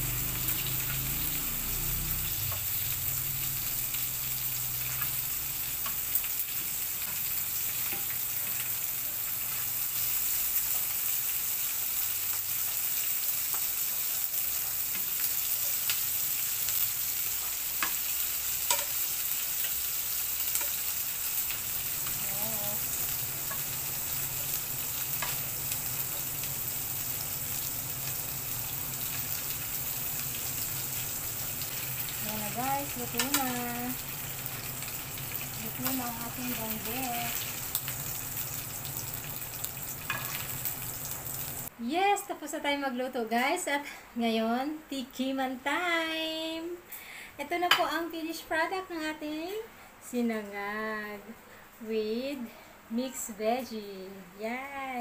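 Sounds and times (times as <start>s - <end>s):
fish sizzling in hot oil: 0.0s - 41.7s
metal tongs clicking on pan: 18.6s - 19.0s, 33.1s - 33.6s.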